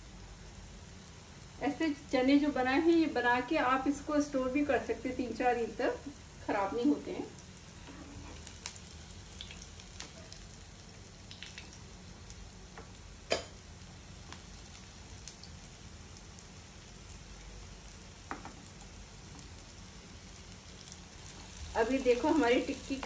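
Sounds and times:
patties sizzling in oil: 0:00.0 - 0:23.0
oil crackles and clicks: 0:08.4 - 0:23.0.

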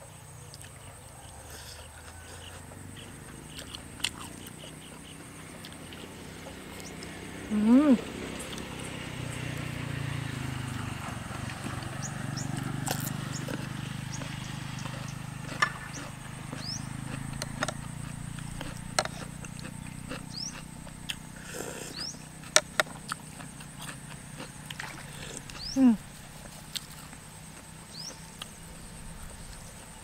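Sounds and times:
small birds chirping: 0:00.0 - 0:30.0
chewing and mouth smacks: 0:03.5 - 0:07.1, 0:12.8 - 0:25.8.

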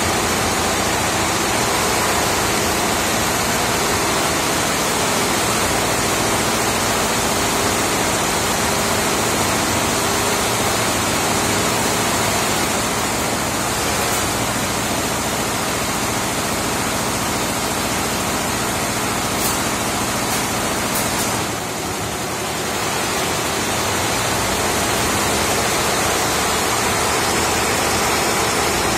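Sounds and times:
embroidery machine running: 0:00.0 - 0:28.9.

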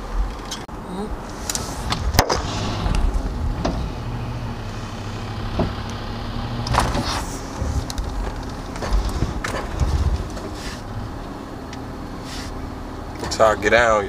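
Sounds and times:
truck engine running: 0:00.7 - 0:14.0
sharp clicks and knocks: 0:05.5 - 0:06.0, 0:06.6 - 0:10.6.

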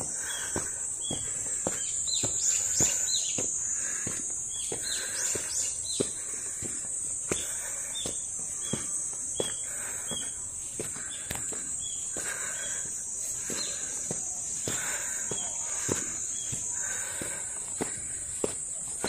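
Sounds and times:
footsteps on stone path: 0:00.0 - 0:19.0
insects droning: 0:00.0 - 0:19.0.

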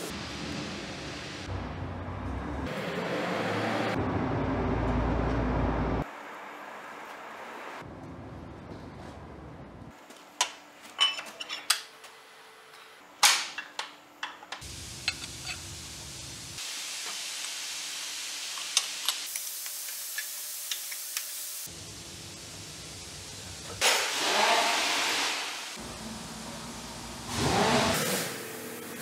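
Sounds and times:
metallic clinks of steel parts: 0:11.0 - 0:11.9
steady hiss: 0:14.6 - 0:23.8.

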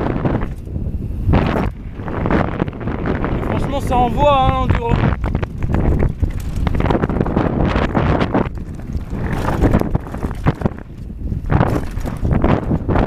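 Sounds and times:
wind buffeting microphone: 0:00.0 - 0:13.0
bike rattling and knocking: 0:01.4 - 0:13.0
tyres crunching on stones: 0:04.6 - 0:12.8.

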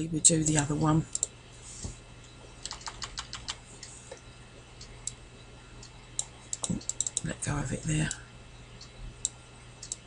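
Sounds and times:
computer keyboard key clicks: 0:02.6 - 0:03.6.

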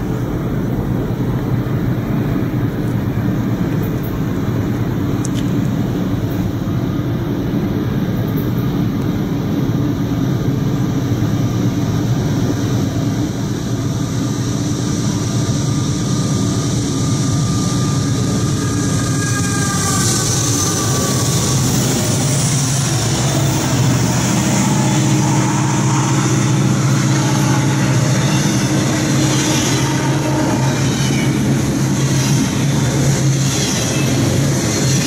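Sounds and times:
diesel locomotive engine rumble: 0:00.0 - 0:35.0
train wheels hissing on rail: 0:00.0 - 0:35.0.

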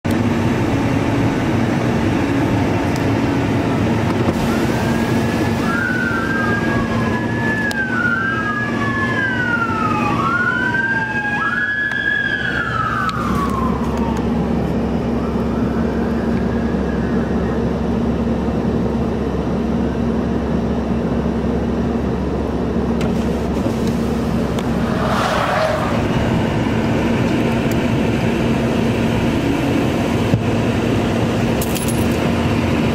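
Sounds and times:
traffic rumble: 0:00.0 - 0:32.9
emergency vehicle siren wailing: 0:00.2 - 0:18.6, 0:24.0 - 0:31.5.

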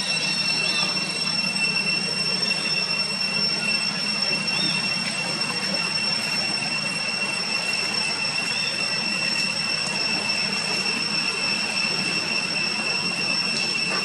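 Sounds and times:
insects droning: 0:00.0 - 0:14.0.

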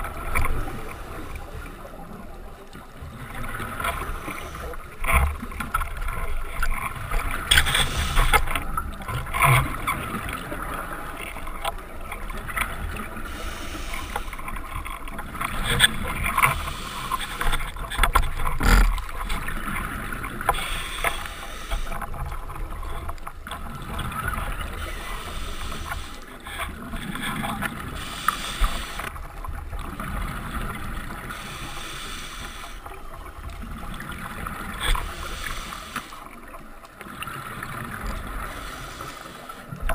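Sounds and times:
underwater water noise: 0:00.0 - 0:39.9
exhaled breath bubbling: 0:33.6 - 0:36.2.

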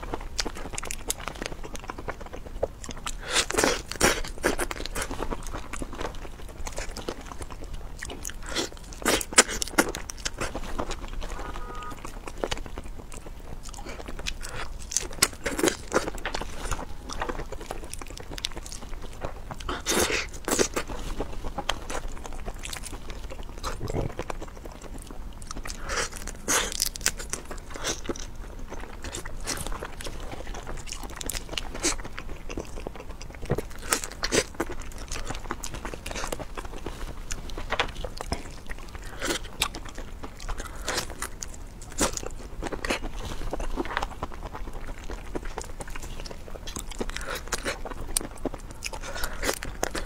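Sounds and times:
wet chewing: 0:00.0 - 0:50.0
shrimp shells crunching: 0:00.4 - 0:50.0.

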